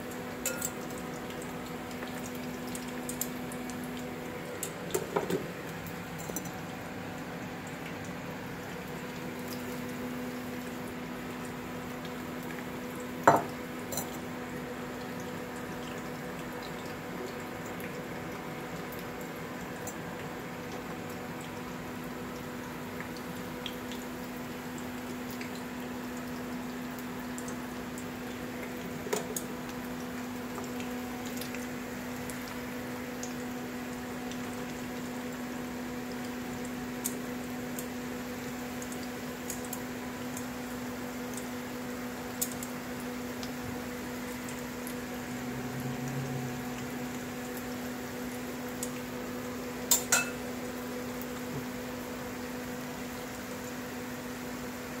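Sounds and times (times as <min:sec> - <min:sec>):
potatoes sizzling in oil: 0:00.0 - 0:19.7, 0:20.3 - 0:55.0.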